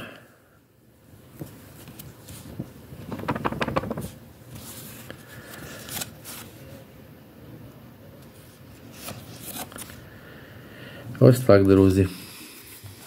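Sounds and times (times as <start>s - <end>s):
banknotes rustling and crackling: 1.4s - 6.8s.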